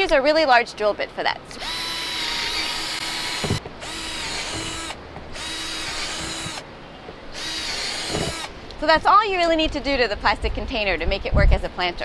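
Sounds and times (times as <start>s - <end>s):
power drill boring plastic: 1.6s - 6.6s, 7.4s - 8.5s.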